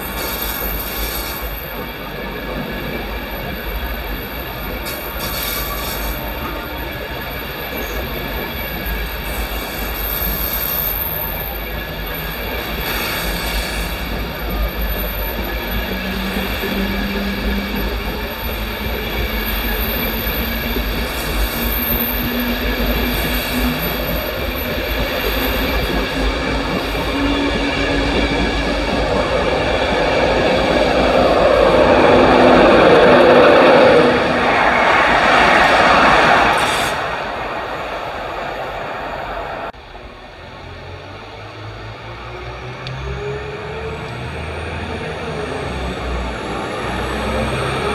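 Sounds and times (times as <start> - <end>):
train wheels rumbling on rail: 0.0 - 47.9
locomotive hum rising in pitch: 14.1 - 39.8.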